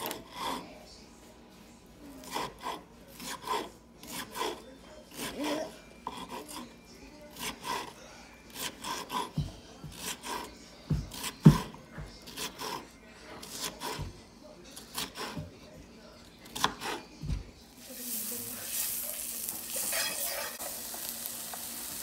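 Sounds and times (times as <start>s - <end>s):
knife chopping on wooden board: 2.2s - 6.4s, 8.6s - 12.8s, 13.4s - 14.1s, 14.8s - 15.5s, 16.4s - 17.4s.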